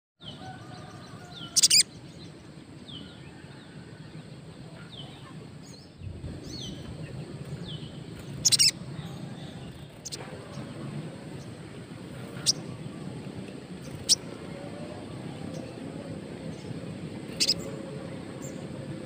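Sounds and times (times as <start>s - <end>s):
bird chirping: 0.2s - 3.5s, 4.1s - 19.0s
harsh bird bursts: 8.4s - 8.9s, 16.5s - 18.0s.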